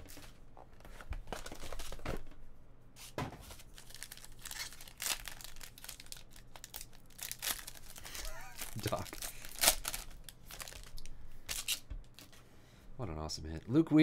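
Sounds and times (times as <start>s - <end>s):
foil wrapper crinkling and tearing: 3.7s - 11.8s.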